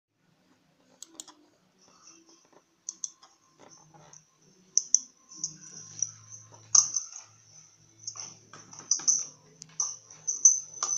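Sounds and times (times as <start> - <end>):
computer mouse clicks: 0.9 - 1.5.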